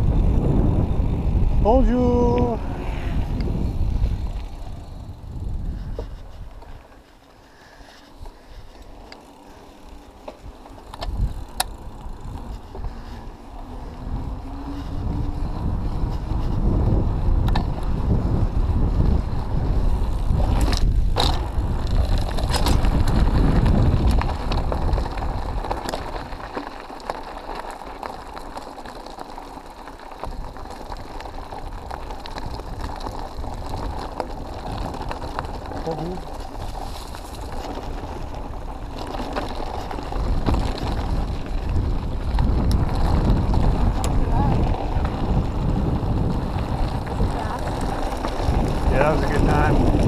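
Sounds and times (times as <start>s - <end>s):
wind rushing over microphone: 0.0s - 6.8s, 10.4s - 26.6s, 30.2s - 50.0s
bike tyres rolling on gravel: 0.0s - 50.0s
bike knocking over bumps: 20.4s - 27.2s, 36.4s - 45.4s.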